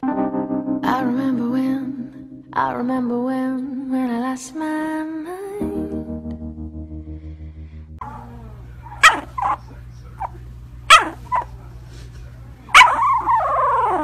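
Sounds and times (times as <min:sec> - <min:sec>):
puppy crying: 0:08.0 - 0:10.3, 0:10.9 - 0:11.6, 0:12.7 - 0:14.0
puppy yipping in its sleep: 0:08.0 - 0:11.5, 0:12.7 - 0:14.0.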